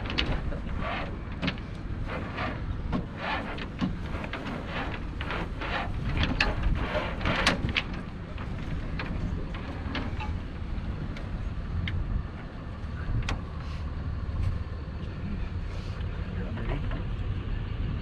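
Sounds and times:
rope scraping and rustling: 0.0 - 11.6
wind on microphone: 0.0 - 13.6.

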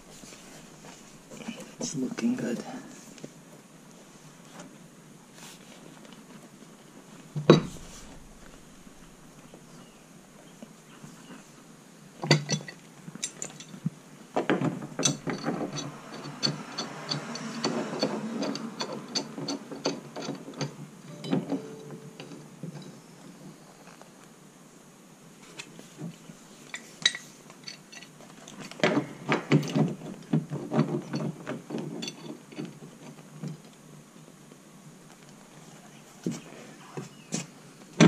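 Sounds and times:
wrench clicking and scraping on metal: 15.0 - 20.8.

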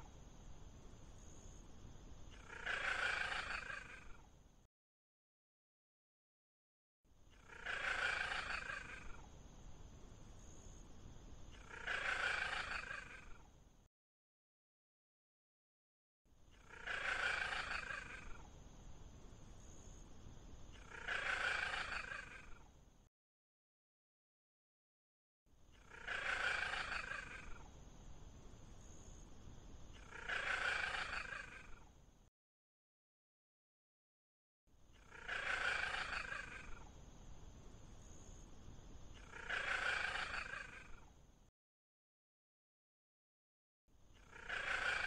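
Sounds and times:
faint background hiss: 0.0 - 4.7, 7.1 - 13.9, 16.4 - 23.1, 25.5 - 32.3, 34.8 - 41.5.

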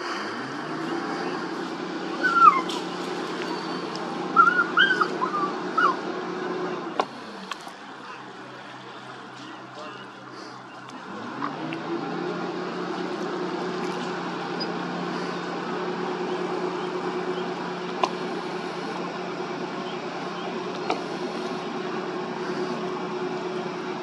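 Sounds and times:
tugboat engine running: 0.0 - 24.0.

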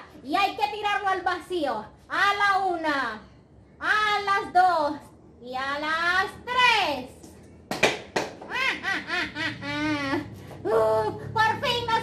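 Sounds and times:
woman laughing: 8.5 - 10.4.

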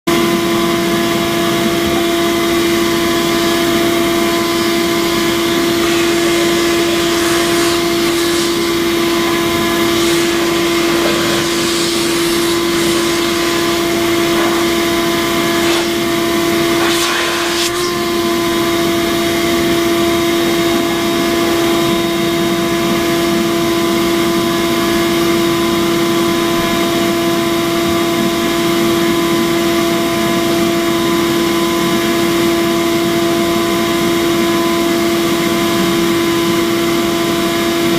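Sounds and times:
sharpening machine motor hum: 2.5 - 19.7.

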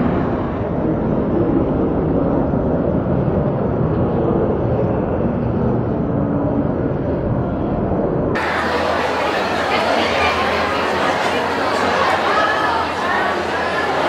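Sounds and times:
indistinct crowd voices: 0.0 - 1.2, 8.3 - 14.0
low city rumble: 0.0 - 14.0.

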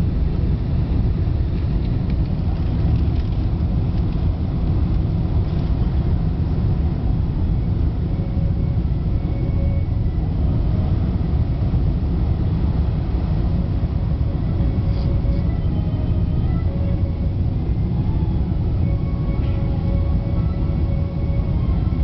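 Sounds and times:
aircraft cabin jet engine rumble: 0.0 - 22.0.

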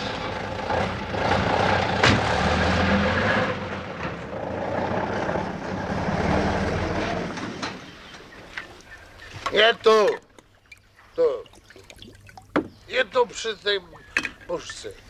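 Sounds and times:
truck diesel engine driving past: 0.0 - 8.2.

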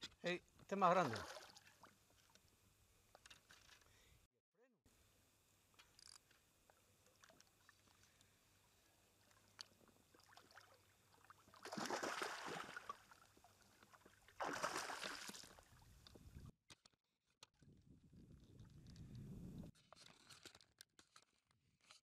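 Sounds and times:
fish splashing at surface: 11.5 - 13.0, 14.4 - 15.6.

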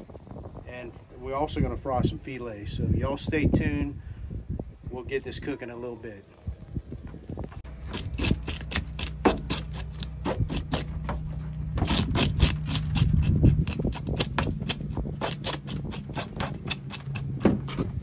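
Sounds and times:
low hum: 6.4 - 18.0
knife scraping fish scales: 7.8 - 11.0, 11.8 - 17.4.

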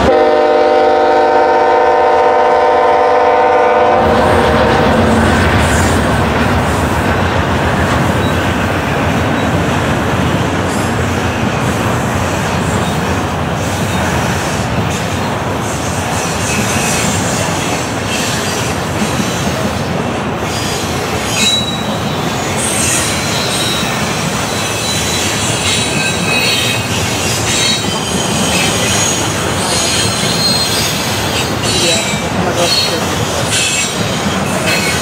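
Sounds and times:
freight train wheels rumbling: 0.0 - 35.0
high wheel squeal: 20.4 - 35.0.

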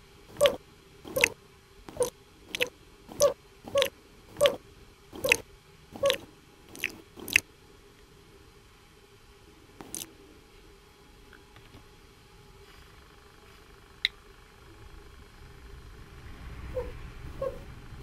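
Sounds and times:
cartoon slurping licks: 0.3 - 4.6, 5.2 - 5.4, 6.0 - 7.4, 9.8 - 10.1.

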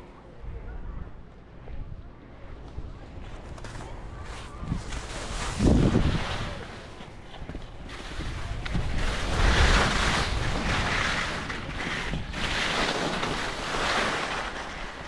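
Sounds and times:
wind buffeting microphone: 0.0 - 15.0
skis scraping over snow: 3.2 - 15.0.

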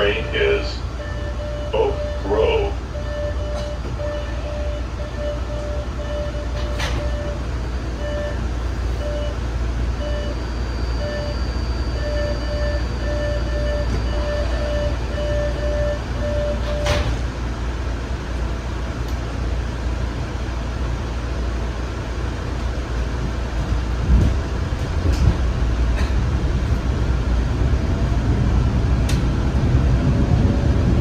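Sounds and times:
warning tone beeping: 0.0 - 7.4, 8.0 - 8.4, 9.0 - 9.4, 10.0 - 17.0
subway car hum: 0.0 - 31.0.

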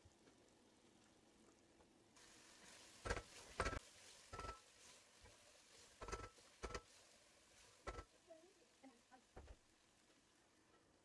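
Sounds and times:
faint sizzle: 0.0 - 11.0
wooden spatula scraping a pot: 2.2 - 8.2.

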